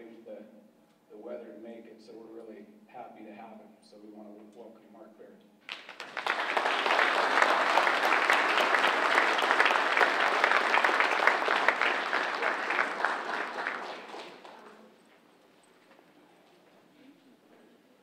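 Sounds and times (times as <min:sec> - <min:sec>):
audience applauding: 0:05.7 - 0:14.9.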